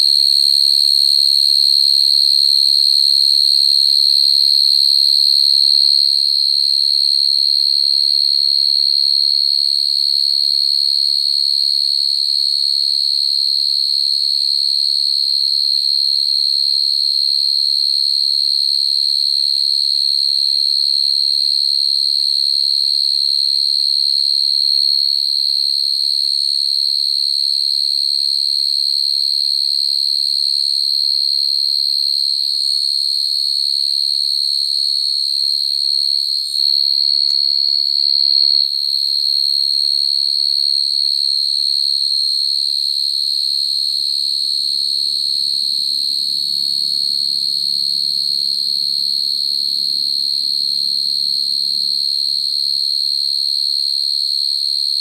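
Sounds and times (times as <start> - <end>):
crickets trilling: 41.3 - 53.4.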